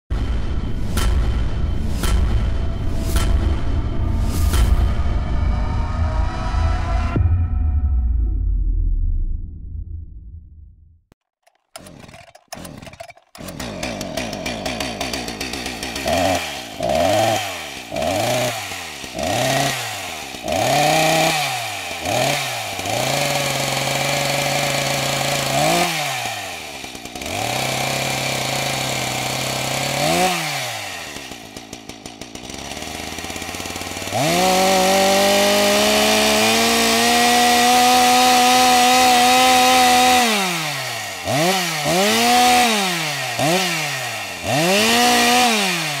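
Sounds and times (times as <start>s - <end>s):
chainsaw engine revving: 11.3s - 46.0s.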